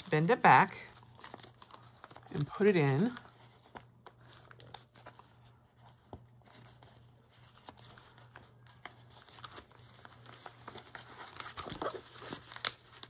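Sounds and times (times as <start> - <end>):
plastic cover crinkling: 0.0 - 13.0.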